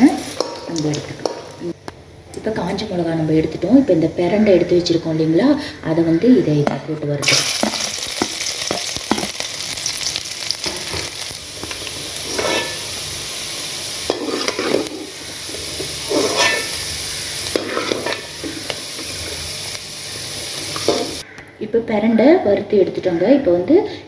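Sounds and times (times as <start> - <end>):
stems sizzling in hot oil: 0.0 - 1.8, 7.2 - 21.2
spatula scraping a pan: 11.6 - 13.0, 14.0 - 19.3.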